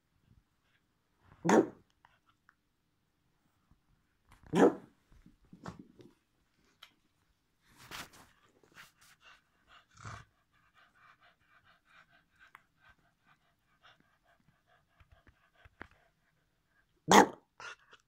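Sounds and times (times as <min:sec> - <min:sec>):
dog panting: 0:08.6 - 0:17.0.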